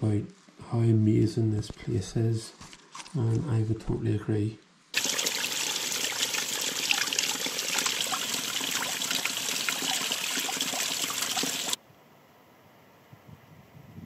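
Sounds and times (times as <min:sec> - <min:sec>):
water trickling over rocks: 0:05.0 - 0:11.8.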